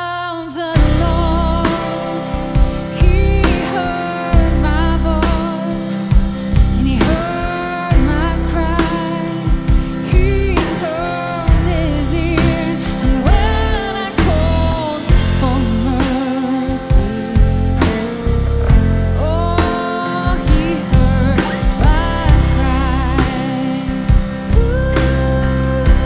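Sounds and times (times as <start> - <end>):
keyboard accompaniment: 0.0 - 26.0
woman singing slow song: 0.0 - 26.0.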